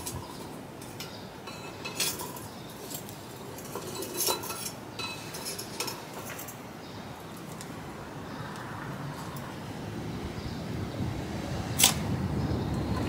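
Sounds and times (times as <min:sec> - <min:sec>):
metal utensils clinking: 0:00.0 - 0:06.6.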